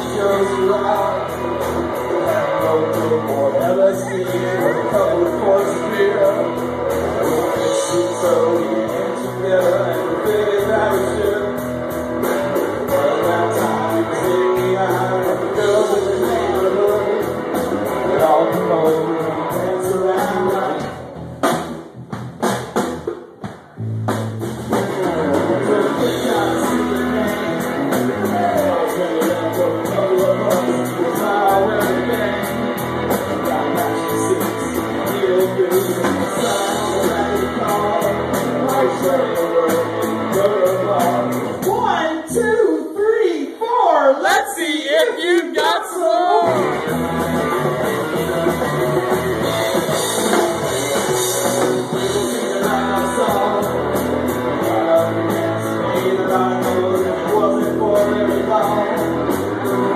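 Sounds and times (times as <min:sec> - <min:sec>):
live rock band playing: 0:00.0 - 0:42.4, 0:44.9 - 0:59.9.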